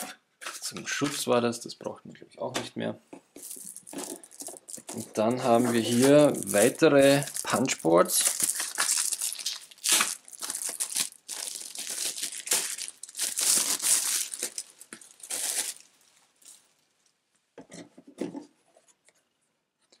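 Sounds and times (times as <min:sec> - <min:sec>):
packaging crinkling and tearing: 0:03.4 - 0:16.7.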